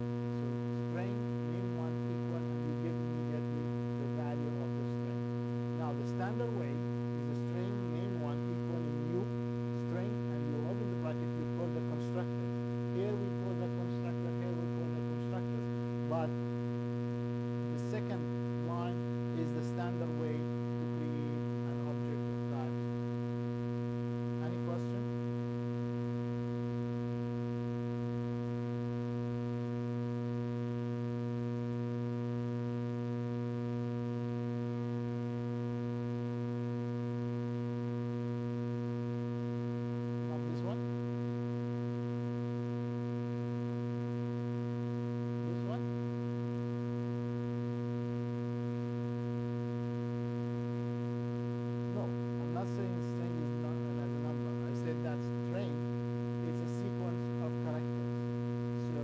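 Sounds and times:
electrical mains hum: 0:00.0 - 0:59.0.

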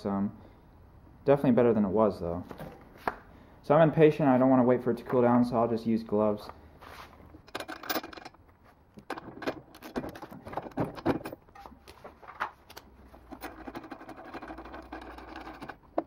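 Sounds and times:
metal clinks and knocks: 0:07.4 - 0:11.8, 0:13.1 - 0:16.0.

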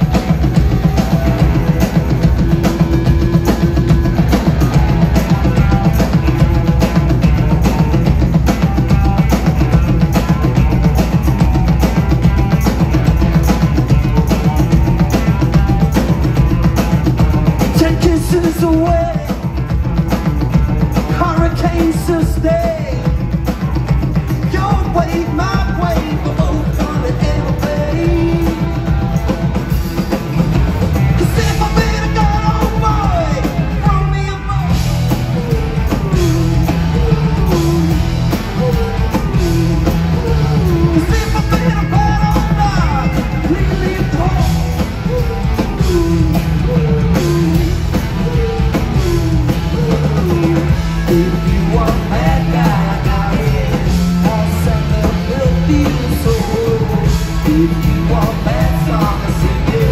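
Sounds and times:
bass: 0:00.0 - 0:59.9
drums: 0:00.0 - 0:59.9
electric guitar: 0:00.0 - 0:59.9
person singing: 0:17.6 - 0:19.6, 0:21.0 - 0:23.2, 0:24.4 - 0:29.5, 0:31.0 - 0:59.9.

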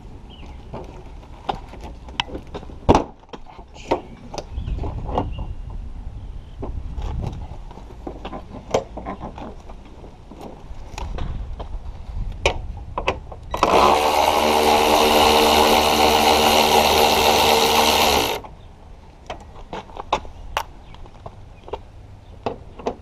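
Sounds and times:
cordless driver running: 0:13.6 - 0:18.4.

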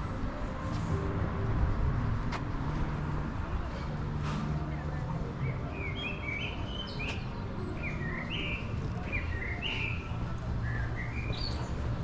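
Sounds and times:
birds chirping: 0:04.8 - 0:12.0.

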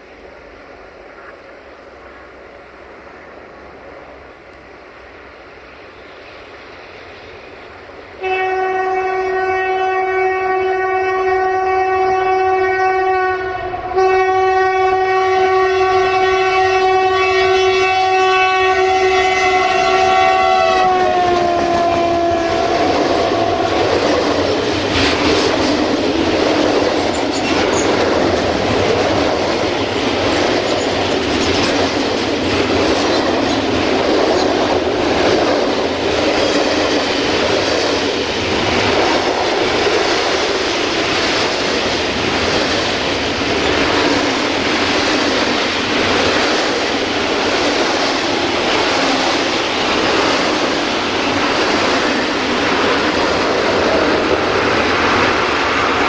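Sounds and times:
locomotive horn blast: 0:08.2 - 0:24.0
wheels clicking over rail joints: 0:21.2 - 0:55.4.

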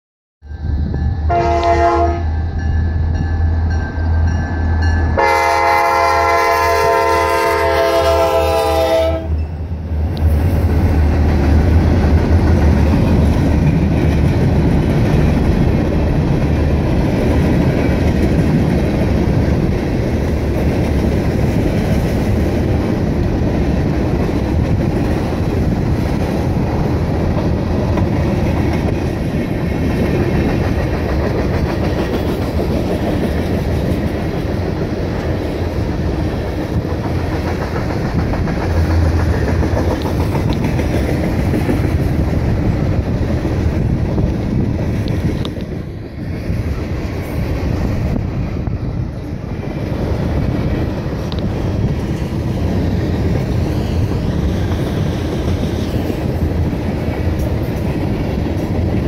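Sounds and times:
train wheels on rails: 0:00.4 - 0:59.0
locomotive engines rumbling: 0:00.5 - 0:59.0
locomotive horn blast: 0:01.3 - 0:02.4, 0:05.2 - 0:09.4.

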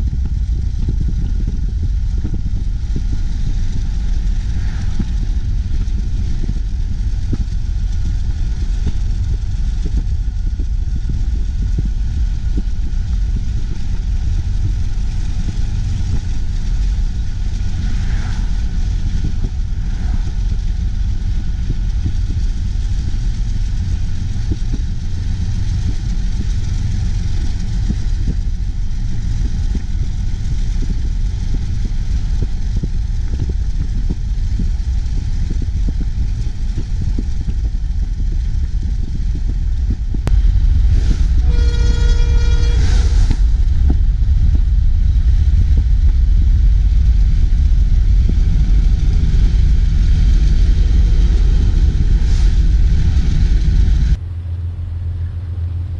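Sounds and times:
car driving road and wind noise: 0:00.0 - 0:54.3
coal train running: 0:01.8 - 0:55.9
horn sounding: 0:41.4 - 0:43.4.

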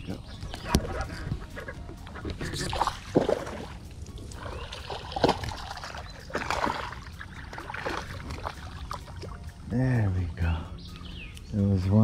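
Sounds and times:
fish splashing at water surface: 0:04.4 - 0:09.3.

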